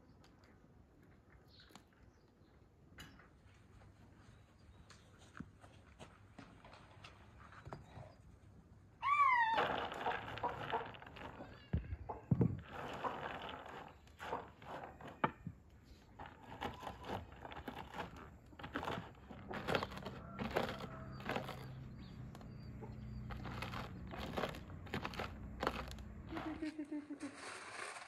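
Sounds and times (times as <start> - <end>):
rolling pin crushing walnuts: 9.6 - 11.6, 12.2 - 26.6.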